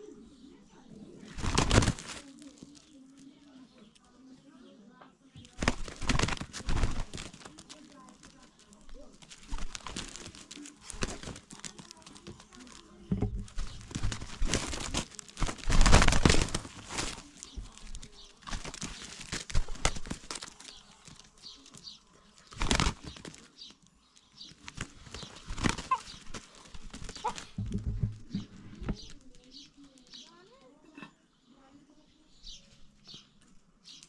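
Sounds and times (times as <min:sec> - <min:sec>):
wings flapping: 0:01.2 - 0:03.3, 0:05.4 - 0:23.8, 0:24.4 - 0:30.3
feet scuffling on dry dirt: 0:05.6 - 0:23.5.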